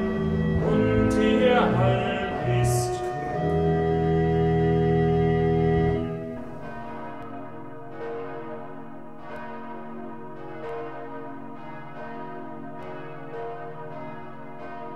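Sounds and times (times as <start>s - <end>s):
church bells ringing: 0.0s - 14.9s.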